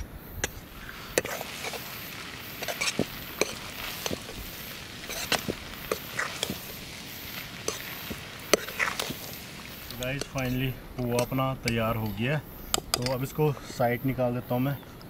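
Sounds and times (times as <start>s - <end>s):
faint hiss: 0.0s - 15.0s
food cooking in a pan: 0.4s - 13.3s
sharp clicks and taps: 9.8s - 13.2s.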